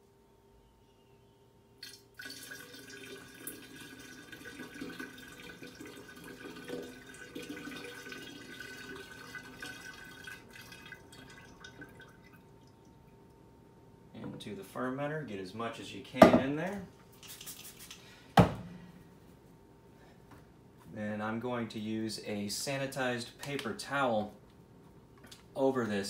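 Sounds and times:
liquid pouring through funnel: 1.8 - 13.2.

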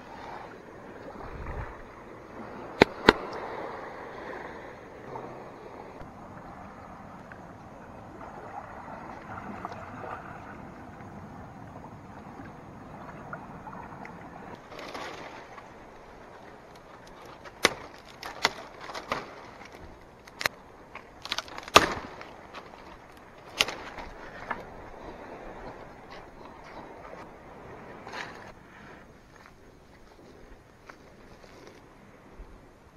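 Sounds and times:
dry branches snapping: 2.8 - 3.3, 16.7 - 24.6.

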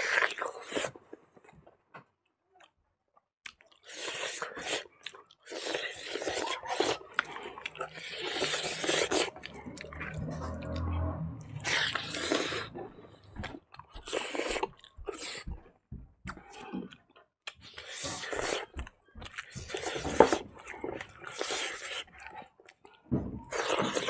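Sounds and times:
chewing and mouth smacking: 3.4 - 10.8, 11.6 - 15.7, 16.3 - 24.0.

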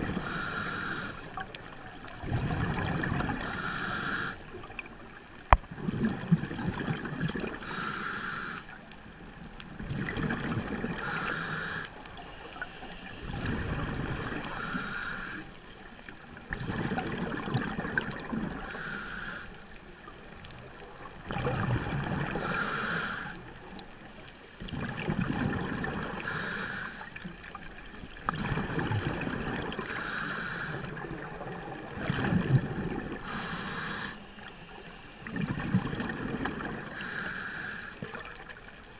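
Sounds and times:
regulator inhale hiss: 0.2 - 1.3, 3.4 - 4.5, 7.6 - 8.8, 11.0 - 13.5, 14.4 - 15.6, 18.6 - 19.7, 22.4 - 24.7, 26.2 - 27.1, 29.8 - 31.0, 33.2 - 35.6, 36.9 - 38.1
exhaled bubbles burbling: 2.1 - 3.5, 5.6 - 7.7, 9.8 - 11.1, 13.3 - 14.5, 16.5 - 18.7, 21.2 - 22.6, 24.6 - 26.4, 28.1 - 30.0, 30.9 - 33.3, 35.3 - 37.0.

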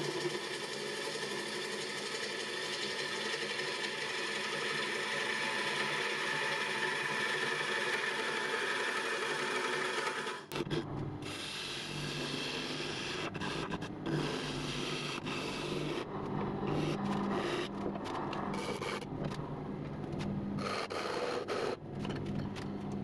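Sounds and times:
lathe motor hum: 0.0 - 21.9
gouge scraping wood: 10.5 - 19.1.

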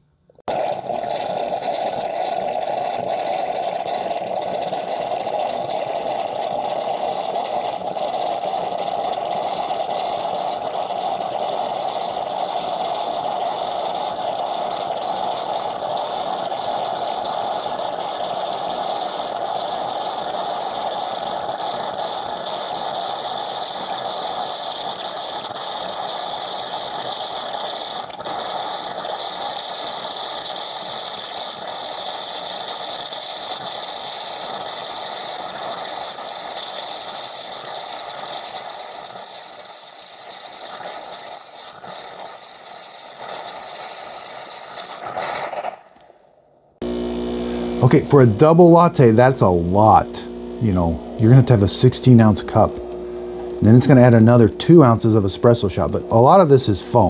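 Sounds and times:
frothed milk hissing: 0.4 - 46.2, 46.8 - 57.0
milk frother whirring: 0.4 - 57.0.

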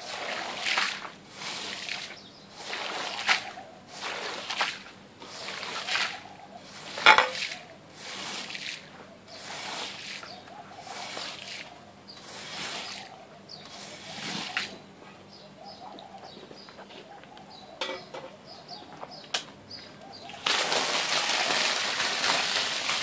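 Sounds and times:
squeegee swishing water from carpet: 0.0 - 13.1, 13.7 - 14.8.

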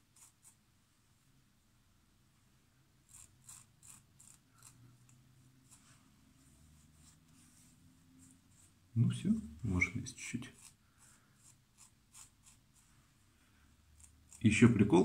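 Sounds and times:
razor scratching stubble: 0.1 - 0.6, 3.1 - 5.8, 10.5 - 12.8, 14.0 - 14.8.

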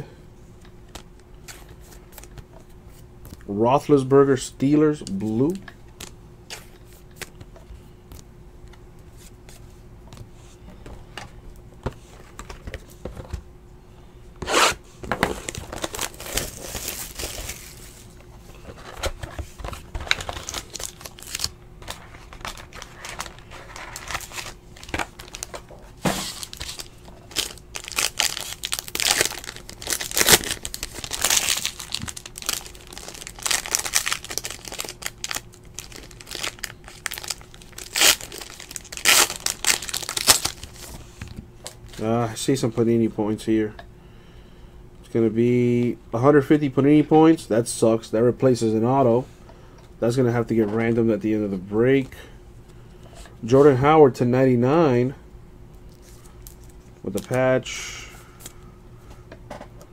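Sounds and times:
faint steady hum: 0.0 - 59.9
plastic card sleeves rustling: 15.1 - 42.0
foil wrappers crinkling and tearing: 15.3 - 18.0, 18.8 - 42.0.

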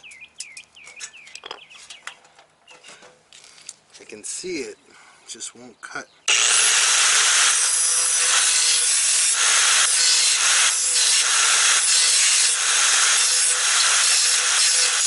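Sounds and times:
angle grinder cutting steel: 6.3 - 15.0.

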